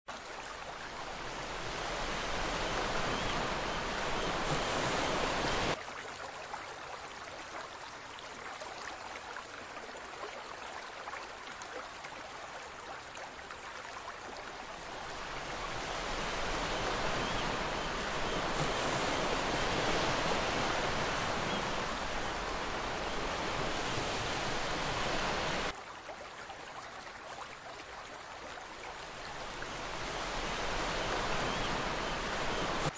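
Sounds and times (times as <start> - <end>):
ocean waves rushing: 1.0 - 5.8, 14.8 - 25.8.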